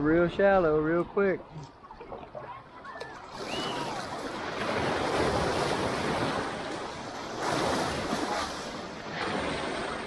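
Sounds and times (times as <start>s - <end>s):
small waves breaking: 0.0s - 10.0s
whitewater rushing around kayak hull: 0.0s - 10.0s.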